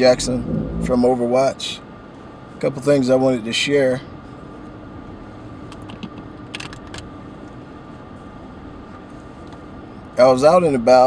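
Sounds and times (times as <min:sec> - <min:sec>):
low hum inside car cabin: 0:00.0 - 0:11.0.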